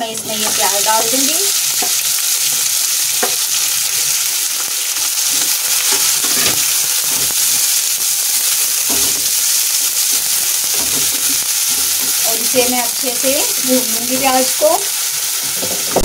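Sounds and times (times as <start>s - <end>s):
onions sizzling in hot oil: 0.0s - 16.0s
spatula scraping pan: 5.2s - 7.5s.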